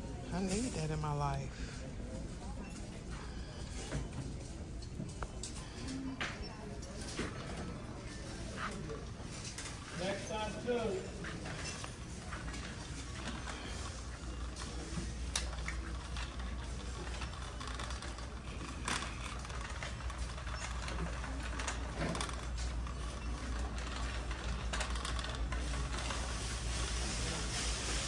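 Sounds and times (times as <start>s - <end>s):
shopping cart rattling on concrete: 6.9s - 28.0s.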